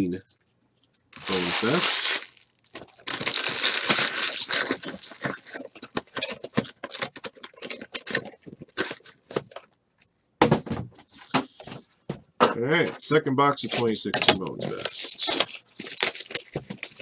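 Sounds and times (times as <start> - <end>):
card packs rustling and tapping: 1.2 - 7.1, 14.3 - 17.0
foil wrapper crinkling: 1.2 - 7.2, 14.6 - 17.0.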